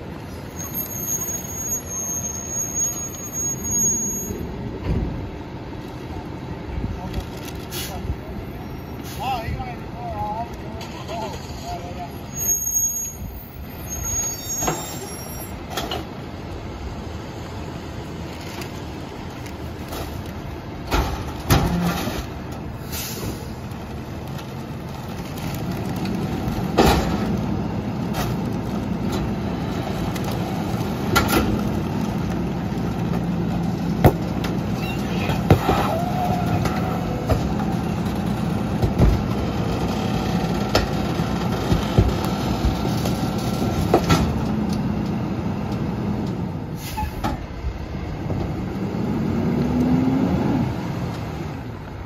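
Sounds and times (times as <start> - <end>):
garbage truck engine and hydraulics: 10.8 - 52.0.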